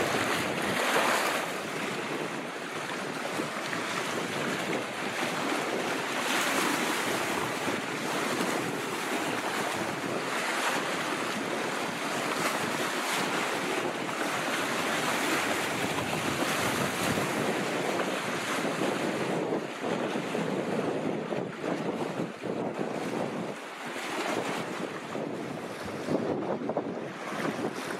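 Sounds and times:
waves splashing on rocks: 0:00.0 - 0:18.8
wind gusting on microphone: 0:00.0 - 0:27.9.

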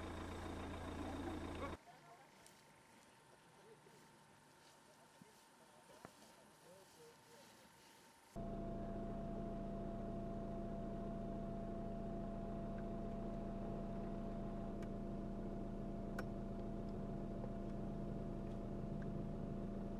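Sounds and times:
vehicle engine idling: 0:00.0 - 0:01.8, 0:08.4 - 0:19.9.

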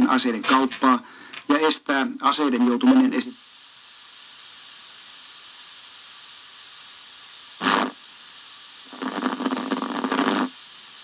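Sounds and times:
newsreader speaking on radio: 0:00.0 - 0:03.4
radio static hiss: 0:00.0 - 0:11.0.

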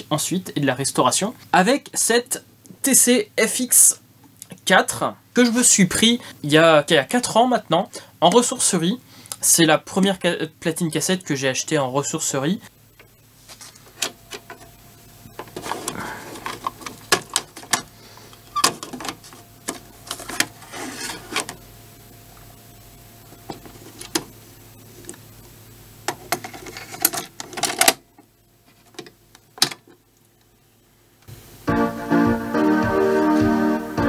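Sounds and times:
cassette deck clicks and clunks: 0:15.4 - 0:17.9, 0:26.1 - 0:28.1, 0:29.0 - 0:30.0
keyboard music: 0:31.6 - 0:34.0.

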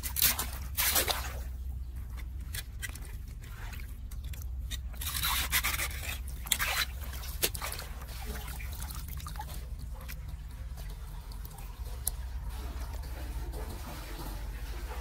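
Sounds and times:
steady low hum: 0:00.0 - 0:15.0
water splashing: 0:00.0 - 0:15.0
rake scraping mud: 0:02.2 - 0:08.7.

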